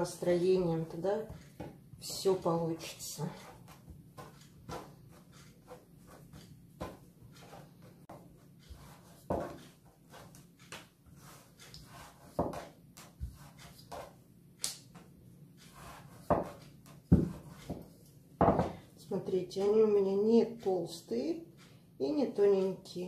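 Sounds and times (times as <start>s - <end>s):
rolling pin rolling dough: 0.0s - 23.0s
rolling pin knocking on counter: 9.2s - 9.6s, 12.4s - 12.7s, 16.2s - 17.8s, 18.4s - 18.8s.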